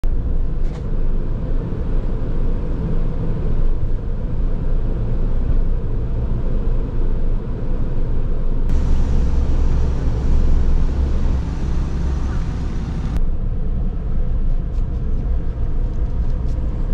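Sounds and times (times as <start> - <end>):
car road and engine rumble: 0.1 - 16.9
tyre and wind hiss: 8.7 - 13.2.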